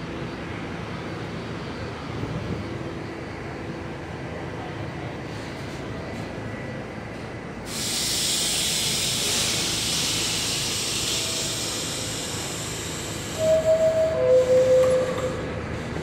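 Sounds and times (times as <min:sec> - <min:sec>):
low rumble of train: 0:00.0 - 0:16.0
compressed air hiss: 0:07.7 - 0:13.4
door chime: 0:13.5 - 0:15.4.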